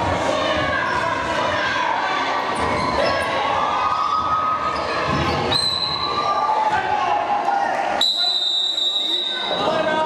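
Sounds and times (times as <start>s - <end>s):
sneaker squeaks: 4.1s - 6.4s.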